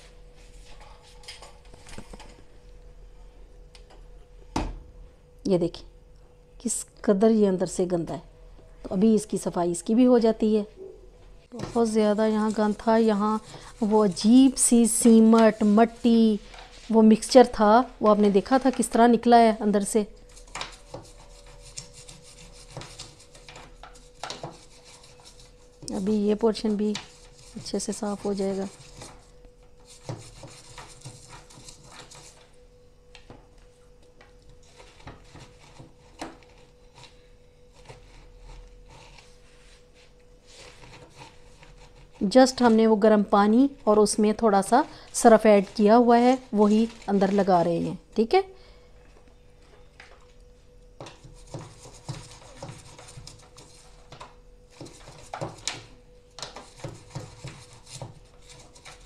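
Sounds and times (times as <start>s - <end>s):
faint steady hum: 0.0s - 59.0s
hand scrubbing and scraping: 11.6s - 14.6s
toothbrush scrubbing: 11.6s - 14.6s, 20.3s - 32.5s, 40.5s - 42.4s, 51.3s - 54.1s, 56.5s - 59.0s.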